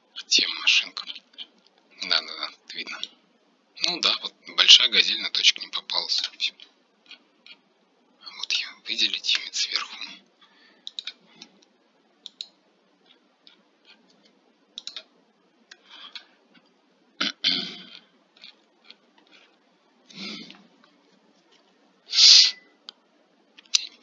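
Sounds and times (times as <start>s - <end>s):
computer mouse clicks: 10.8s - 15.1s.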